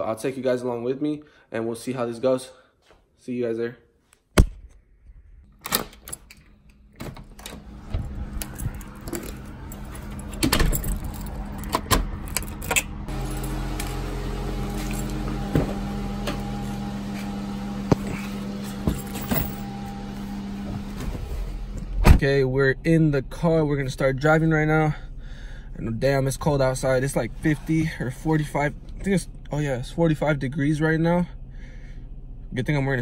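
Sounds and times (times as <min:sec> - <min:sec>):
deadbolt locking with key: 0:05.6 - 0:07.7
car engine idling: 0:07.3 - 0:21.9
keys jangling: 0:07.4 - 0:15.3, 0:18.1 - 0:19.8.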